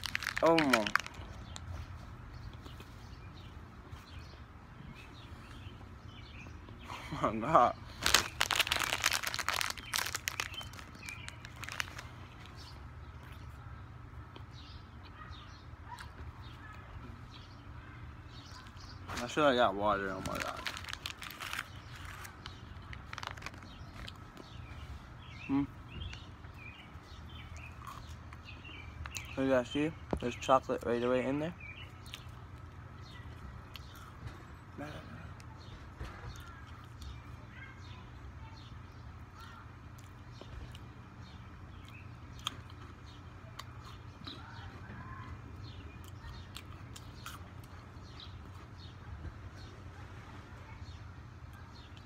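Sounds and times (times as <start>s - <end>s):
plastic snack packet crinkling: 0.0s - 1.7s, 7.9s - 12.6s, 19.9s - 24.5s
small birds chirping: 0.0s - 52.0s
cookies shaken into hand: 8.0s - 12.1s.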